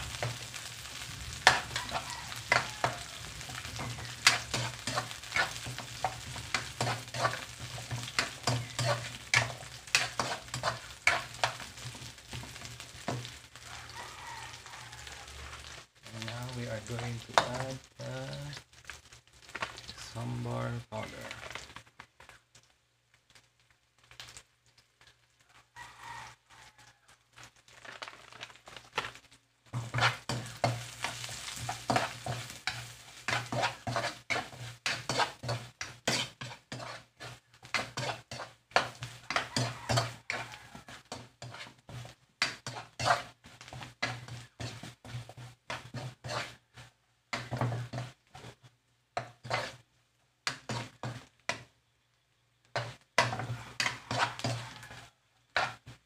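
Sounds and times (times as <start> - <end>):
food sizzling: 0.0 - 56.0
metal spoon scraping a wok: 0.1 - 13.2, 29.7 - 49.8, 50.5 - 51.7, 52.7 - 56.0.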